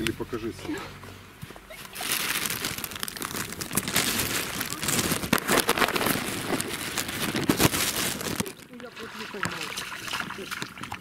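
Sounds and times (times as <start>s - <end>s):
plastic bag crinkling: 1.8s - 9.6s.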